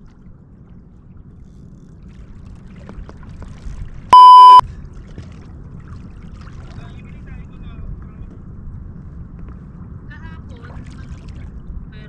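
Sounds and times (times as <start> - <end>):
low rumble of wind and water: 0.0 - 12.0
electronic censor bleep: 4.2 - 4.6.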